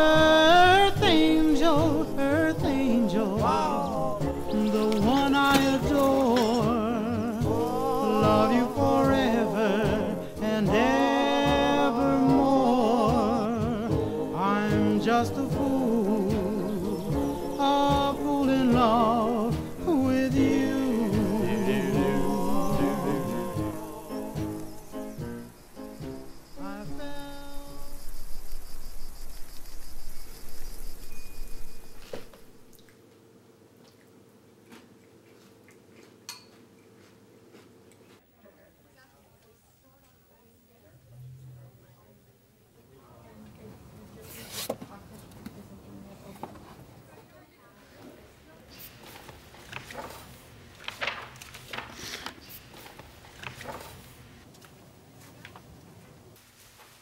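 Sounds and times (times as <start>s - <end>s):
insects trilling: 0.0s - 11.8s, 12.6s - 32.7s
steady hiss: 0.0s - 32.8s
faint steady hum: 0.0s - 44.2s
books knocking and rustling: 48.9s - 54.3s.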